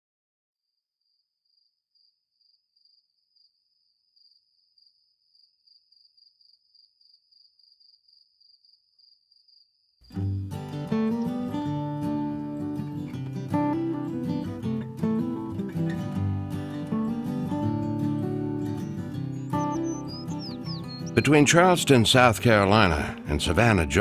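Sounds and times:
insect chirping: 0:01.0 - 0:10.2, 0:18.0 - 0:21.2
strummed acoustic guitar music: 0:10.1 - 0:24.0.

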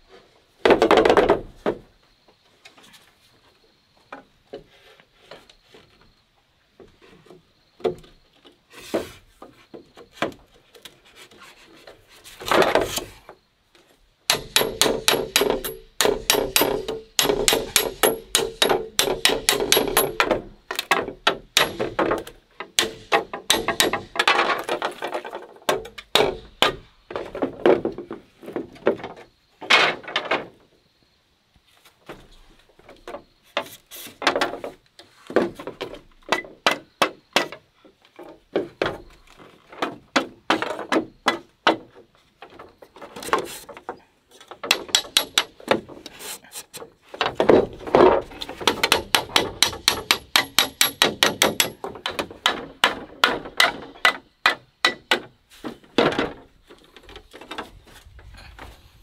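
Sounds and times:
knife striking and scraping wood: 0:44.4 - 0:57.6.

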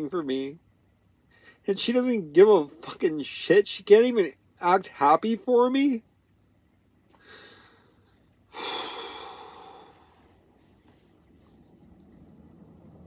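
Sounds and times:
heavy sigh: 0:07.2 - 0:10.4
man breathing heavily: 0:07.2 - 0:10.6
cloth rustling: 0:10.0 - 0:13.0.

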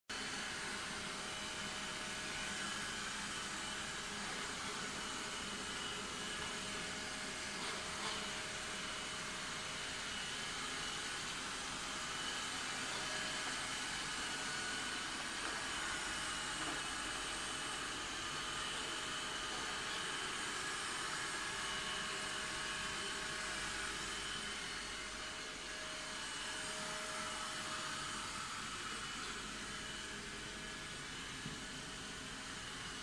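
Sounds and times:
robot vacuum running: 0:00.2 - 0:33.0.

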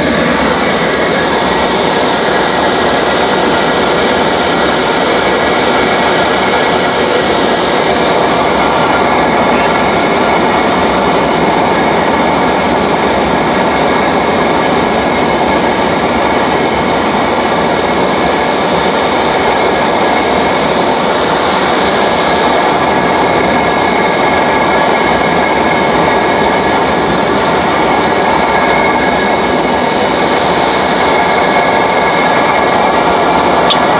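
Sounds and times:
aircraft engine and propeller drone: 0:00.0 - 0:33.9
rushing airflow: 0:00.0 - 0:33.9.

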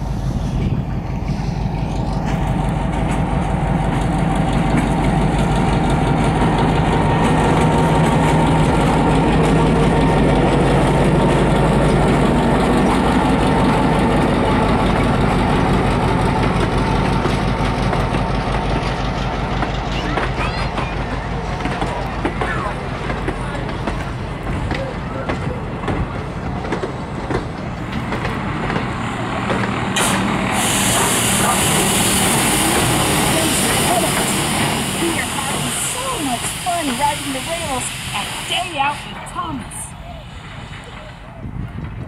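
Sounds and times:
diesel locomotive engine running: 0:00.0 - 0:42.0
train wheels rolling on rails: 0:00.0 - 0:42.0.

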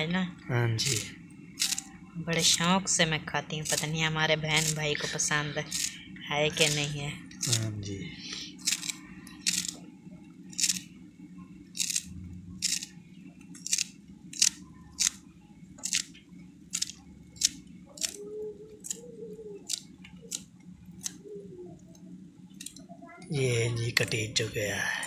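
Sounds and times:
steady low hum: 0:00.0 - 0:25.0
knife cutting herbs: 0:04.6 - 0:04.9.

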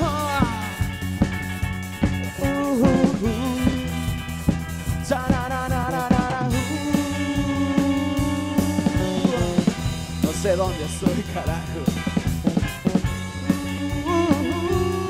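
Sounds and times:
live rock band playing: 0:00.0 - 0:15.0
sliding melody line: 0:02.0 - 0:15.0.

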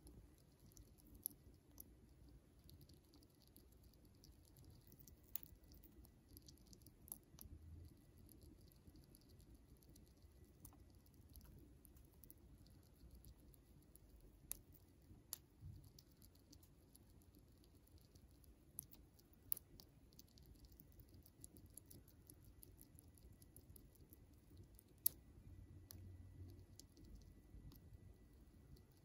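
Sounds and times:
chipmunk teeth clicking on nut: 0:13.0 - 0:25.2.

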